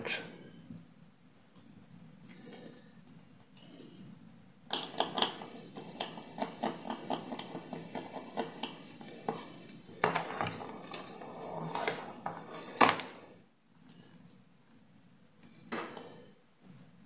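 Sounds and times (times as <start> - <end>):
metal pick scratching circuit board: 4.7 - 12.8.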